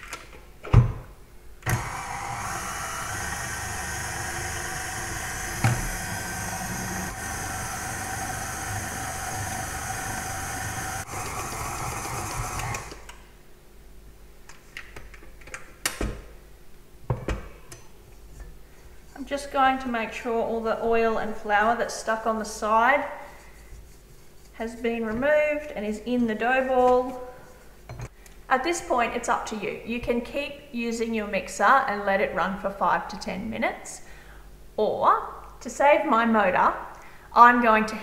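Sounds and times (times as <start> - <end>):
stand mixer motor running: 1.7 - 13.0.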